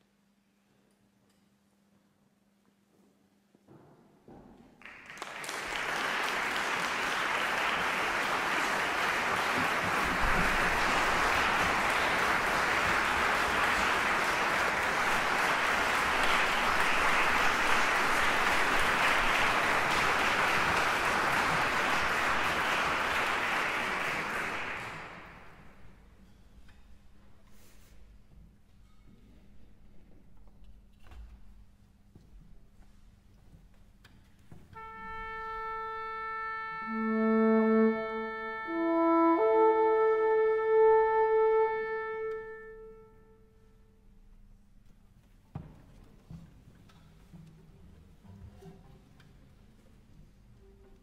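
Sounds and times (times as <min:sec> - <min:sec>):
audience applauding: 0:04.8 - 0:25.8.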